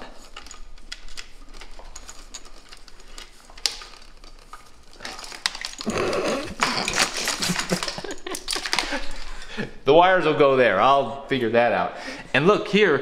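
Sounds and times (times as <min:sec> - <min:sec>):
wires rustling and scraping: 0:00.0 - 0:10.2.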